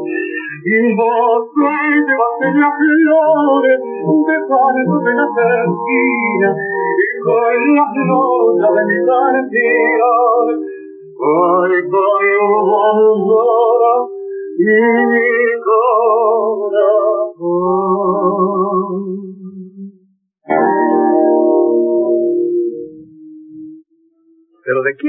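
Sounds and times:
guitars: 0.0 - 19.6, 20.4 - 25.0
man singing with vibrato: 0.0 - 19.6.

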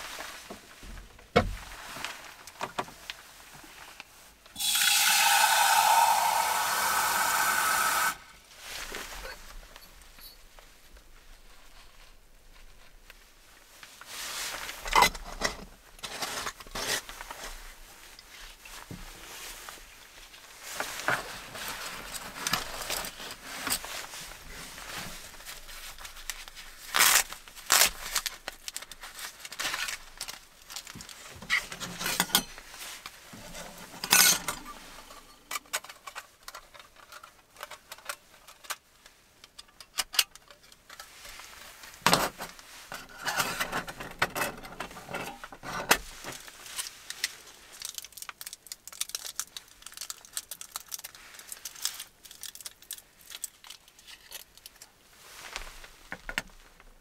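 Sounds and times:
rustling: 0.0 - 4.4, 8.3 - 39.4, 40.5 - 44.2, 44.8 - 57.0
wrapper crinkling: 20.6 - 38.7, 46.1 - 56.0.

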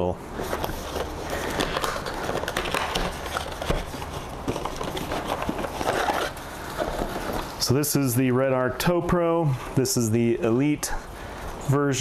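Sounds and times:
cardboard box rustling and scraping: 0.3 - 7.6.

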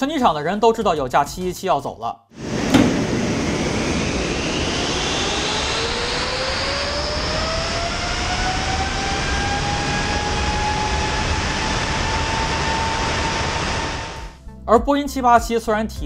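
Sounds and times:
jet engine whine spooling up: 2.4 - 14.4
rush of air: 2.4 - 14.4.

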